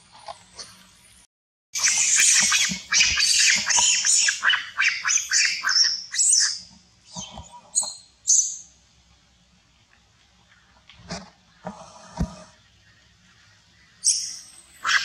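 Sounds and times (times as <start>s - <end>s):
monkeys screaming: 1.8s - 6.6s, 14.8s - 15.0s.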